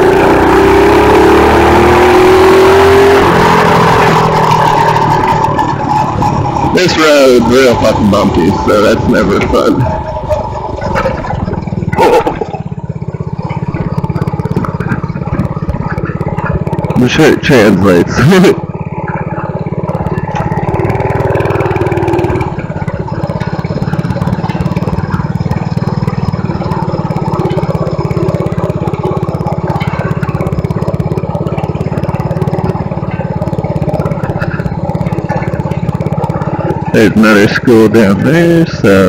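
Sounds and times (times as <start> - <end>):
mini bike engine running: 0.0 - 39.0.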